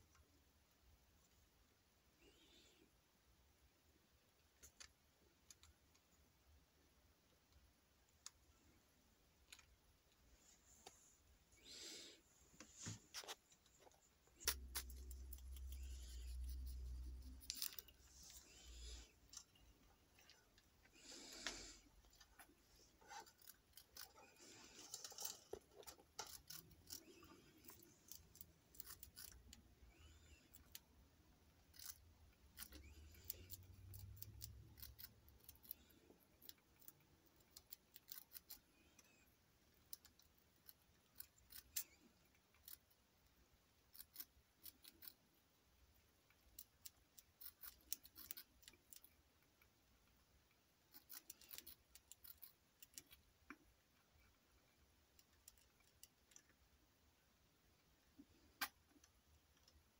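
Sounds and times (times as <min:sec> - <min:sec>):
rat chewing dry food: 0:13.1 - 0:56.9.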